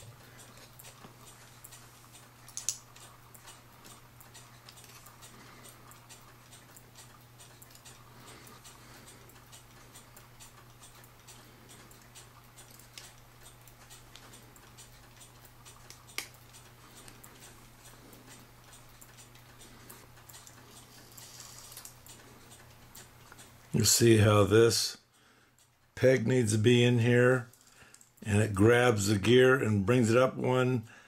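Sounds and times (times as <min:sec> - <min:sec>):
faint metallic clock gear clicks: 0:00.2 - 0:23.7.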